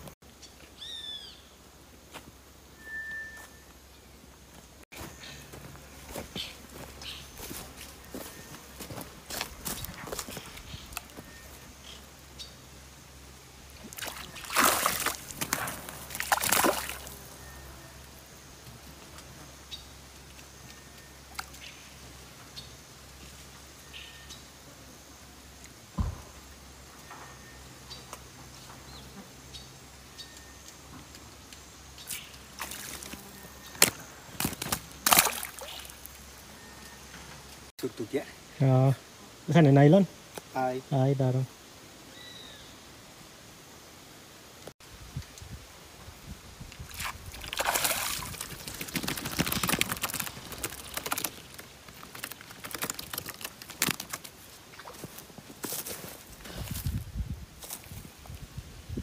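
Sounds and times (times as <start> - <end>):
fish flopping on grass: 13.9 - 17.1, 33.8 - 35.9, 46.9 - 56.0
fish splashing in water: 13.9 - 17.1, 34.4 - 36.1, 46.9 - 55.0.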